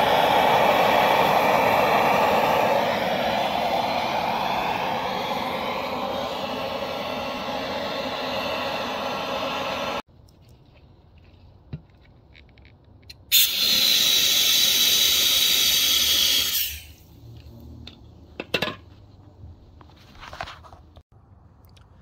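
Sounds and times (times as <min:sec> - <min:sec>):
water hissing to steam on hot metal: 0:13.3 - 0:17.0.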